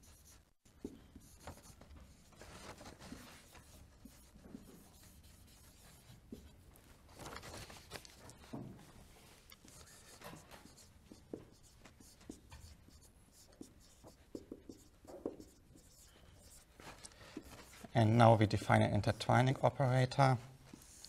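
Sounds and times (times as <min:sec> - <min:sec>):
marker scratching on whiteboard: 0:00.0 - 0:02.4, 0:03.0 - 0:06.6, 0:09.6 - 0:19.8, 0:20.7 - 0:21.0
marker taps: 0:10.7 - 0:16.0.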